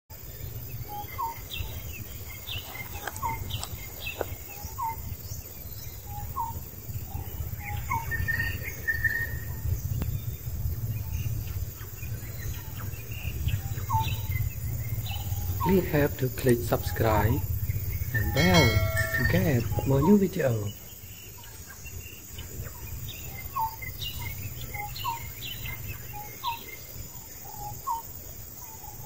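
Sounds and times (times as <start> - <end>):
faint bird chirps: 0.2 - 29.0
steady low rumble: 9.4 - 20.4.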